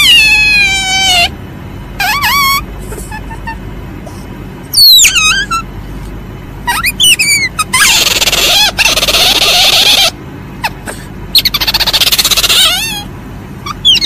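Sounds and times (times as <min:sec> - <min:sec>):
civet high-pitched falling calls: 0:00.0 - 0:01.4, 0:02.0 - 0:03.6, 0:04.7 - 0:05.7, 0:06.6 - 0:10.2, 0:11.4 - 0:14.0.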